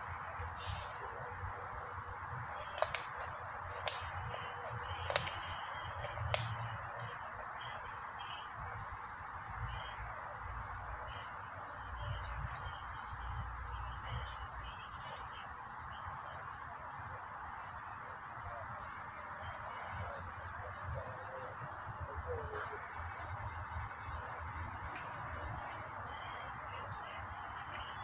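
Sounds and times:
sharp clicks: 0:04.8 - 0:06.8.

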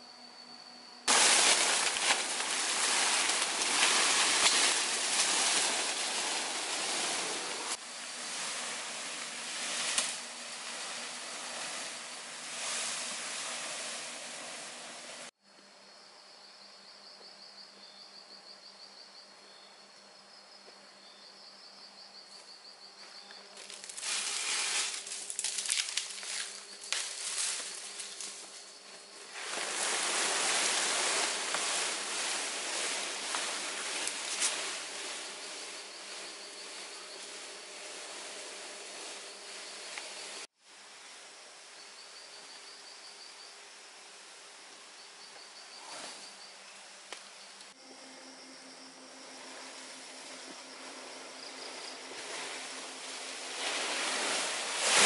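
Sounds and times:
palm leaves rustling: 0:01.1 - 0:15.4, 0:23.5 - 0:41.0, 0:49.1 - 0:55.0
high pulsing insect trill: 0:15.7 - 0:40.5, 0:41.6 - 0:55.0.

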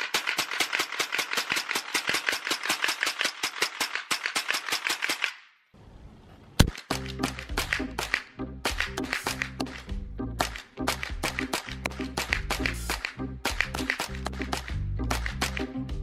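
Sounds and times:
rifle firing rapid shots: 0:00.0 - 0:05.4, 0:06.7 - 0:09.8, 0:10.4 - 0:14.2
music: 0:06.9 - 0:16.0.

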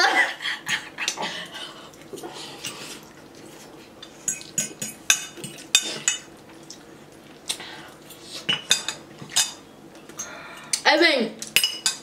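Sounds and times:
forks clinking on ceramic bowls: 0:11.5 - 0:12.0.

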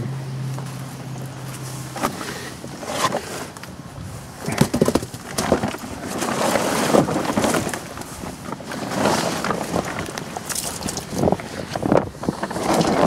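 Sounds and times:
plastic tarp rustling and crinkling: 0:00.6 - 0:13.0.

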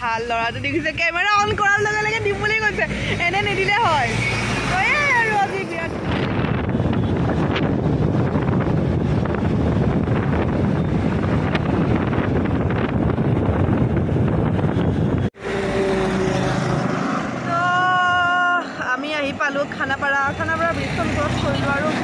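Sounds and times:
motorcycle and road noise: 0:00.0 - 0:22.0
traffic noise: 0:00.0 - 0:22.0
passing vehicle hum: 0:01.5 - 0:22.0
wind buffeting microphone: 0:04.8 - 0:15.5.

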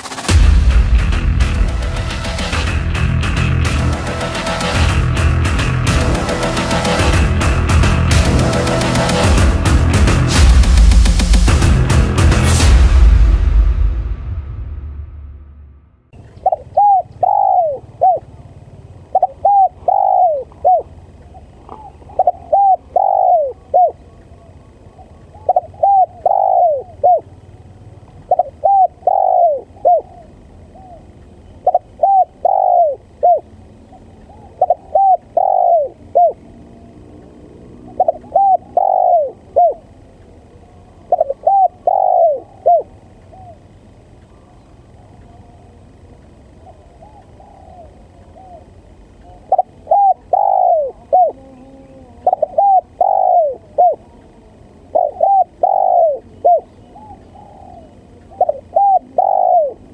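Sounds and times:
dove cooing: 0:16.2 - 0:36.6, 0:37.7 - 0:43.7, 0:44.3 - 0:59.9.

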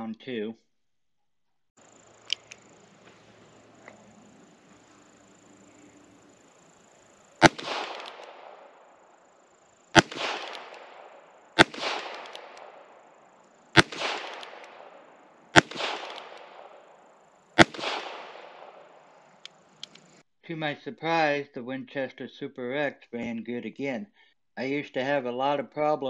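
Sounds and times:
revolver shots with echo: 0:07.4 - 0:08.7, 0:09.9 - 0:13.1, 0:13.7 - 0:16.8, 0:17.6 - 0:19.0.

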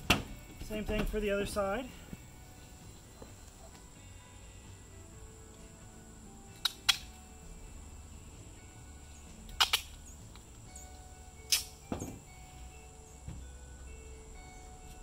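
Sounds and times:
duct tape ripping: 0:06.6 - 0:07.2, 0:09.5 - 0:10.0, 0:11.5 - 0:11.8.

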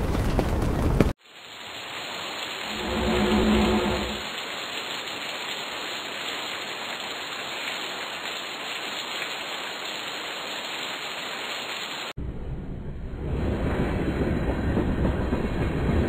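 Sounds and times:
rain-like hiss: 0:01.0 - 0:12.2
low rumble: 0:02.6 - 0:04.3, 0:12.2 - 0:16.0.

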